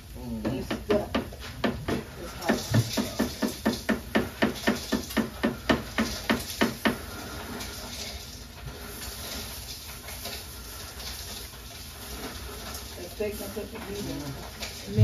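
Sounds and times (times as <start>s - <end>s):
food sizzling on hot stone: 0.0s - 15.0s.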